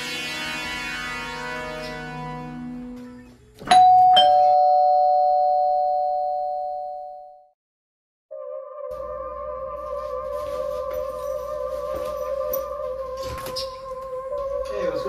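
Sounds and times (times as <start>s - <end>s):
two-tone doorbell chime: 3.6s - 7.5s
background music: 8.3s - 15.0s
eerie wavering music: 8.3s - 15.0s.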